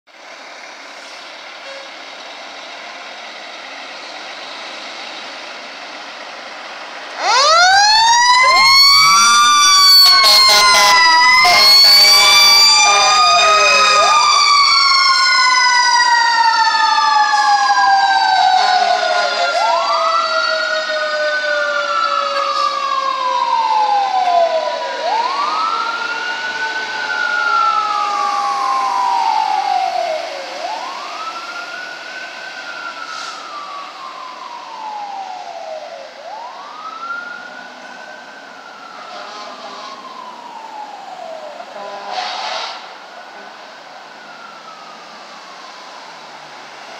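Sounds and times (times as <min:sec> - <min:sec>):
wailing siren: 0:03.5 - 0:46.9
siren winding up and down: 0:07.2 - 0:32.0
short horn blasts: 0:10.1 - 0:14.0, 0:41.8 - 0:42.9.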